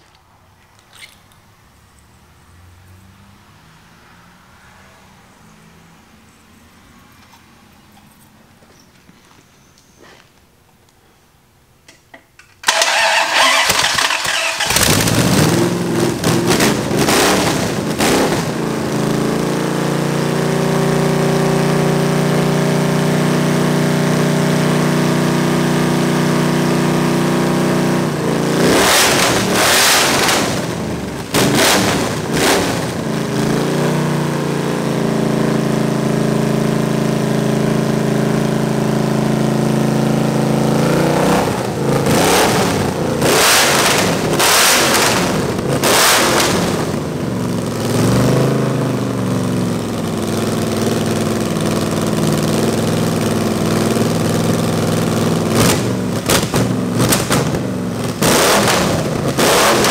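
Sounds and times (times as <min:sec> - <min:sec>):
engine revving through open headers: 0:12.6 - 0:59.9.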